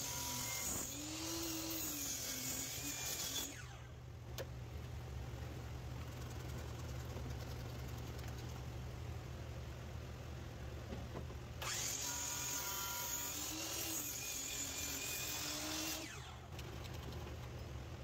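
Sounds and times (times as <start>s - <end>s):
miter saw cutting wood: 0.0s - 3.9s, 11.6s - 16.4s.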